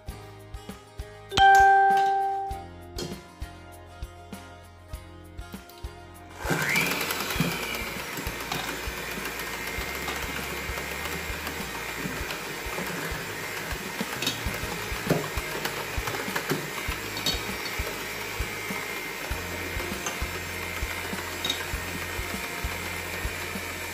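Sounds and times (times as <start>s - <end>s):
electric hand mixer whining: 6.3s - 23.9s.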